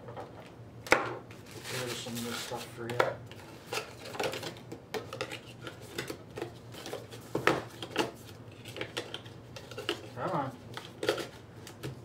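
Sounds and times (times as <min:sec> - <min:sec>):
cardboard and paper rustling: 0:01.4 - 0:02.8.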